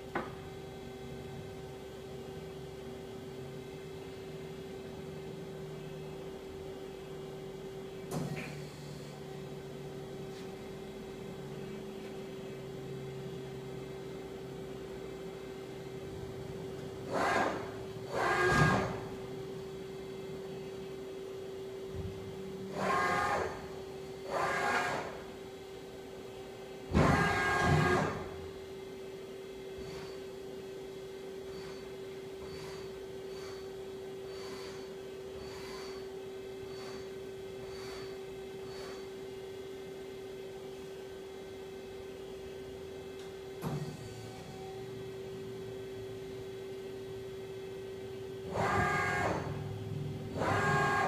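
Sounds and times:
steady machine hum: 0.0s - 51.0s
motor whine bursts: 17.1s - 19.2s, 22.6s - 25.3s, 26.9s - 28.4s, 31.4s - 33.7s, 48.5s - 51.0s.

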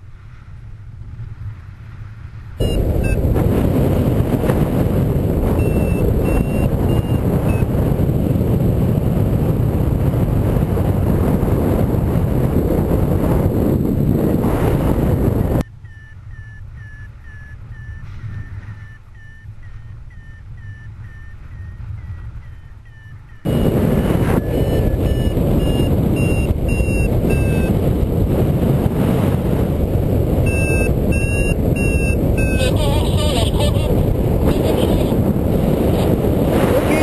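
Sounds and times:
wind rush over microphone: 0.0s - 37.0s
variometer beeping: 2.6s - 3.4s, 5.3s - 7.8s, 15.5s - 27.8s, 30.4s - 33.9s.

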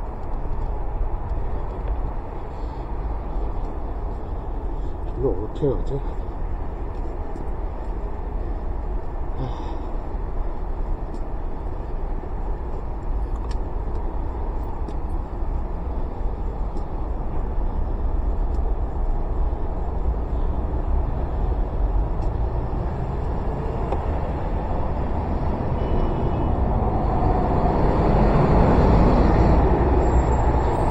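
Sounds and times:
wind rumble on microphone: 0.0s - 30.9s.

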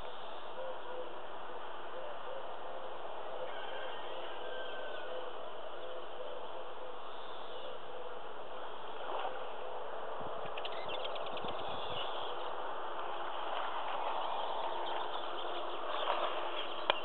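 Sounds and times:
low repeated cooing: 0.0s - 10.4s
steady outdoor hiss: 0.0s - 17.0s.

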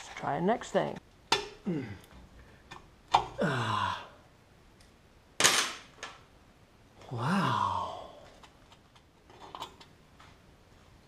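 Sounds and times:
man grunting with effort: 1.6s - 2.1s, 3.3s - 4.2s, 7.0s - 8.2s.

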